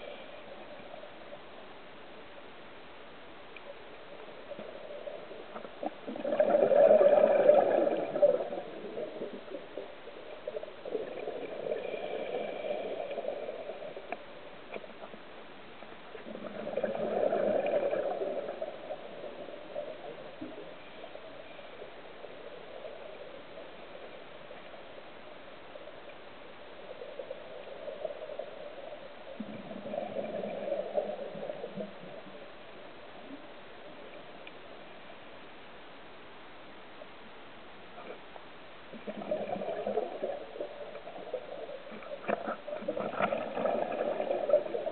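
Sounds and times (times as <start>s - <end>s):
air bubbles bursting underwater: 6.1s - 9.0s, 39.0s - 40.5s, 42.4s - 44.9s.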